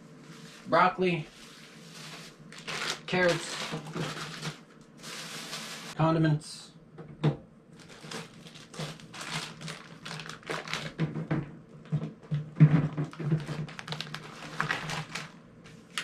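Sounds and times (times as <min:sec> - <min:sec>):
faint steady hum: 0:00.0 - 0:16.0
packaging rustling: 0:01.4 - 0:06.0, 0:07.8 - 0:11.2, 0:12.9 - 0:15.4.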